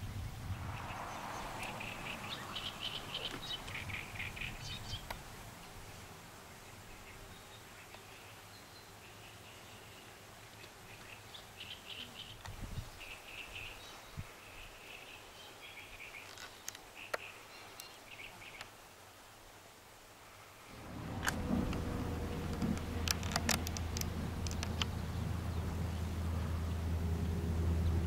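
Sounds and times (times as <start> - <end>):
low steady background noise: 0.0 - 28.0
high bird chirps: 0.5 - 5.0
sharp clicks: 21.2 - 25.0.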